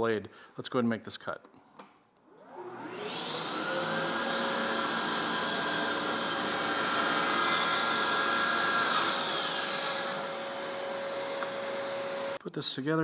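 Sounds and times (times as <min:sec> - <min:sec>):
table saw whining: 0:02.4 - 0:12.4
saw blade cutting plywood: 0:02.8 - 0:12.4.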